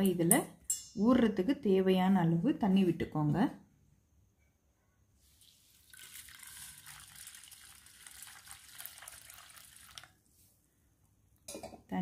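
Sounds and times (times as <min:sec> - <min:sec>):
water pouring onto rice in a bowl: 0:05.4 - 0:10.3.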